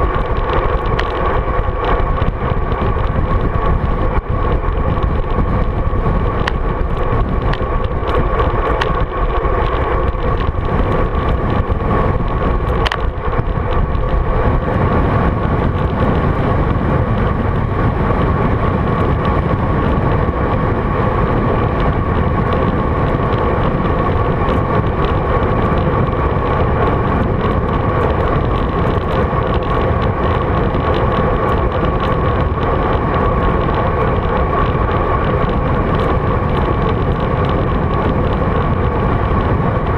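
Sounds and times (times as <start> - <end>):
sharp ticks: 0.0 - 14.8
wind rush on microphone: 0.0 - 39.9.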